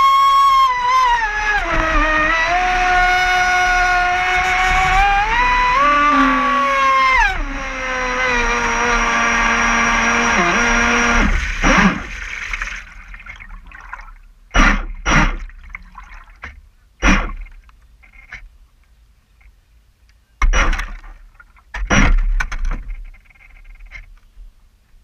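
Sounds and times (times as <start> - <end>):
toy boat motor whining: 0.0 - 12.5
water lapping at hull: 0.1 - 18.4
sharp knocks: 14.5 - 15.5, 16.4 - 17.6, 20.4 - 21.1, 21.7 - 23.0.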